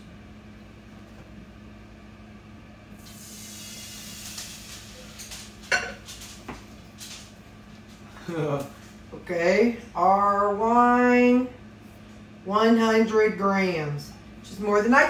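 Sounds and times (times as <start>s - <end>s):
wine sizzling in hot skillet: 3.0s - 6.0s.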